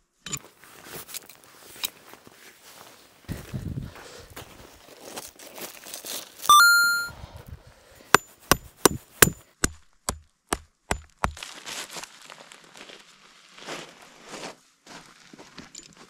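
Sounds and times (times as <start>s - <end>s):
ringing metallic ding: 6.5s - 7.1s
stake being hammered: 8.2s - 11.4s.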